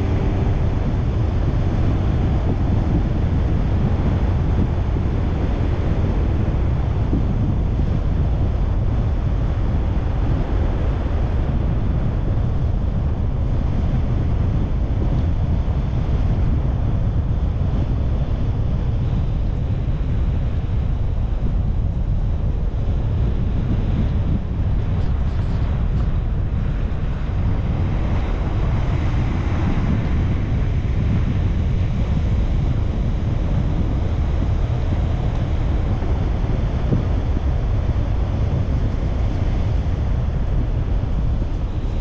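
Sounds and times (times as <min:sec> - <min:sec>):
car road and wind noise: 0:00.0 - 0:42.0.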